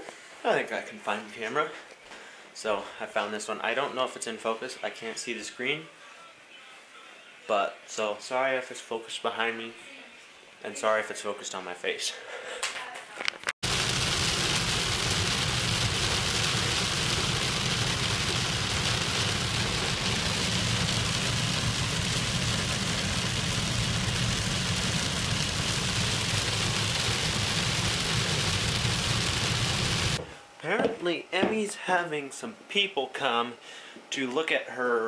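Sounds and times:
rain on car windshield: 0:13.6 - 0:30.2.

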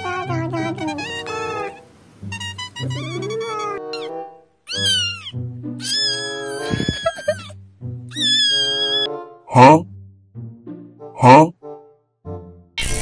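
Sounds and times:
background music: 0:00.0 - 0:13.0
cat meowing: 0:01.0 - 0:07.5, 0:08.1 - 0:09.1.

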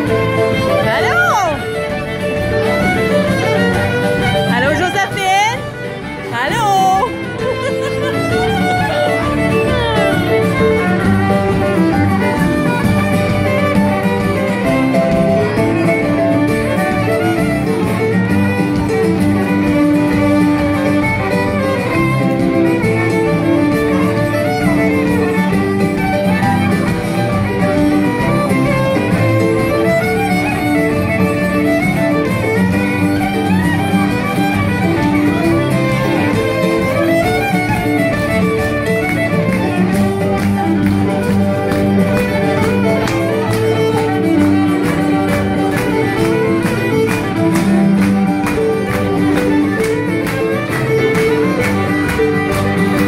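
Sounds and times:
acoustic guitar strumming: 0:00.0 - 0:53.0
fiddle tune: 0:00.0 - 0:53.0.

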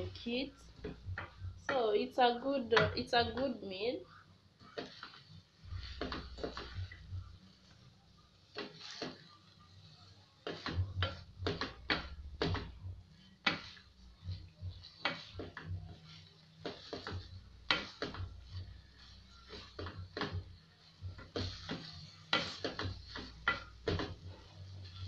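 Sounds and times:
wooden spoon scraping a pot: 0:04.6 - 0:07.8, 0:08.4 - 0:25.0.

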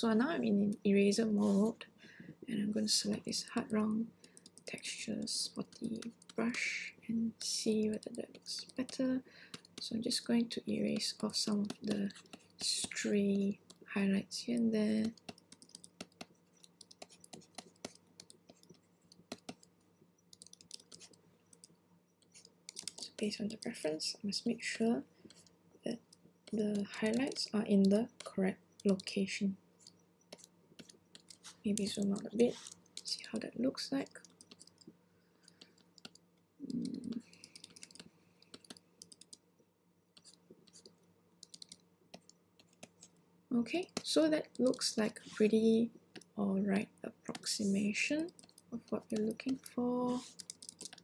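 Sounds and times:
faint low hum: 0:00.0 - 0:51.0
keyboard and mouse clicks: 0:03.6 - 0:06.4, 0:07.4 - 0:09.9, 0:10.8 - 0:13.9, 0:15.0 - 0:24.0, 0:25.3 - 0:29.2, 0:29.8 - 0:39.4, 0:40.2 - 0:43.2, 0:43.8 - 0:45.4, 0:46.1 - 0:46.4, 0:47.3 - 0:51.0
keyboard and pen clicks: 0:15.0 - 0:19.7, 0:20.4 - 0:23.7, 0:29.8 - 0:33.2, 0:34.1 - 0:34.9, 0:35.5 - 0:39.4, 0:40.2 - 0:42.9, 0:50.2 - 0:51.0.

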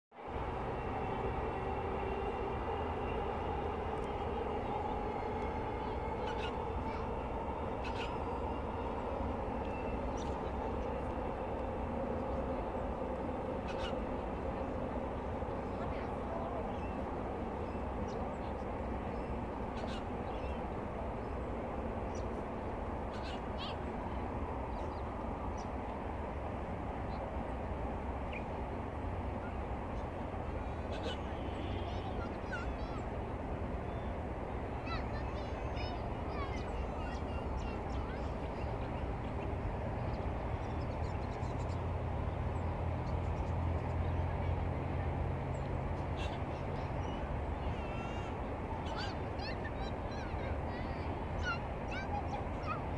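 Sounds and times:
distant freeway traffic: 0:00.1 - 0:52.9
bird calls: 0:00.7 - 0:21.5, 0:23.1 - 0:23.9, 0:29.4 - 0:33.2, 0:45.5 - 0:52.9
bird warbling call: 0:05.7 - 0:10.9, 0:13.6 - 0:14.2, 0:19.7 - 0:20.6, 0:23.1 - 0:23.8, 0:30.7 - 0:32.7, 0:46.1 - 0:50.4.

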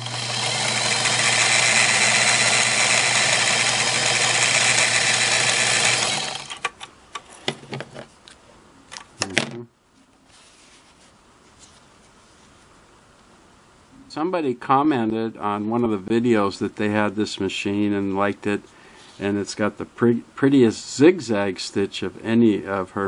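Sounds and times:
motor hum: 0:00.0 - 0:06.9.

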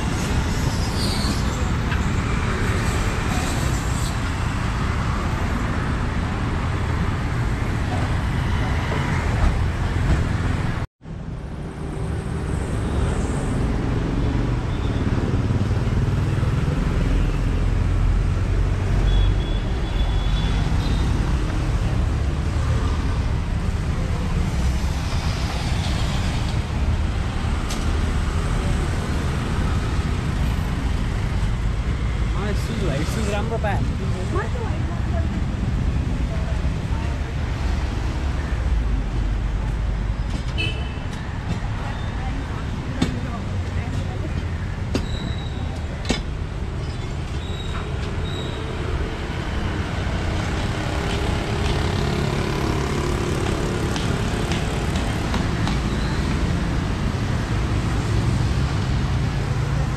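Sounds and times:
street traffic noise: 0:00.0 - 0:59.9.

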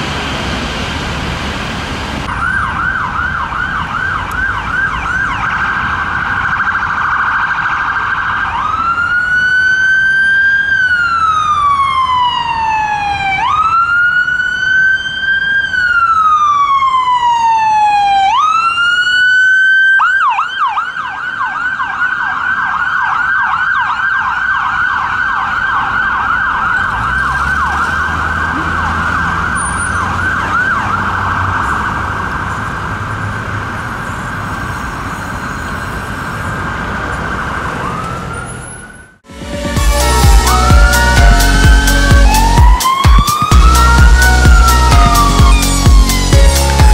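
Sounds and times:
traffic engine rumble: 0:00.0 - 0:07.3, 0:24.6 - 0:46.9
ambulance siren: 0:02.2 - 0:32.8, 0:34.0 - 0:46.9.

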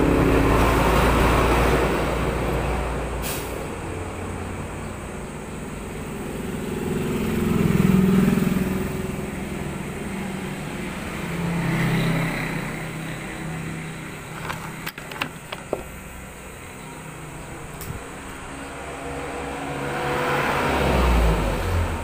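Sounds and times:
road vehicles passing: 0:00.0 - 0:22.0
camera being bumped: 0:14.3 - 0:15.9.

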